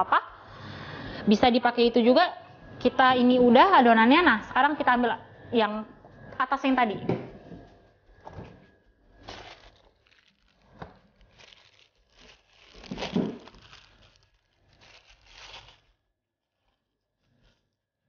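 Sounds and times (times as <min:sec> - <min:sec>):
plastic wrap crinkling: 0:09.0 - 0:16.8.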